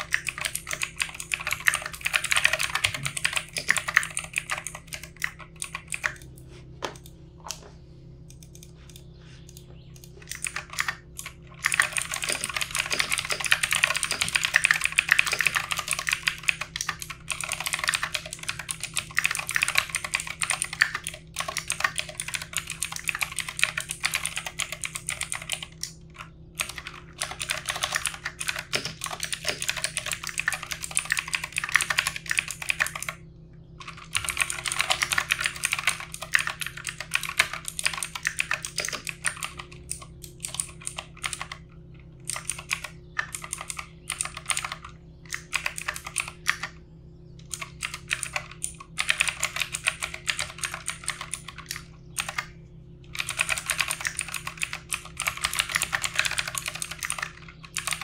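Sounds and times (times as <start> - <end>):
fast typing on keyboard: 0.0 - 6.3, 10.2 - 26.0, 26.6 - 33.2, 33.8 - 41.6, 42.2 - 46.7, 47.5 - 52.5, 53.1 - 58.0.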